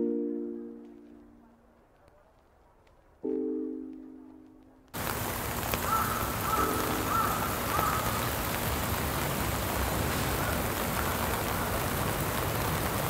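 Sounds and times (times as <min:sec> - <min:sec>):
falling rain hiss: 0:00.1 - 0:13.0.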